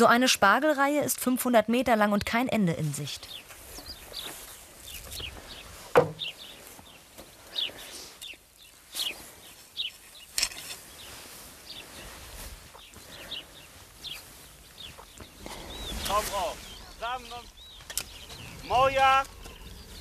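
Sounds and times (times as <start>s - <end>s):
outdoor background noise: 0.0s - 20.0s
small birds chirping: 0.0s - 20.0s
sharp knocks or clicks: 5.9s - 6.3s.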